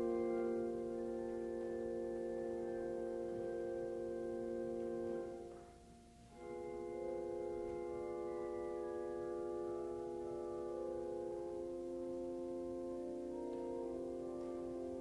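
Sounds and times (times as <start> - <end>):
church organ chords: 0.0 - 15.0.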